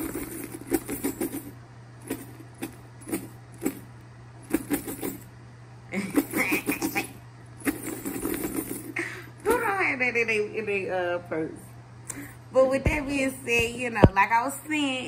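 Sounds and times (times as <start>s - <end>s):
backpack being shaken: 0.0s - 3.9s, 4.5s - 5.2s, 7.6s - 8.9s.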